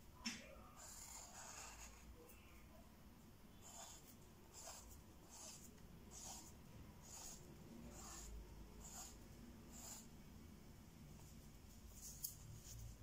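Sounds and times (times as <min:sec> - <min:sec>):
pencil scratching on paper: 0:00.6 - 0:02.2, 0:03.6 - 0:10.1.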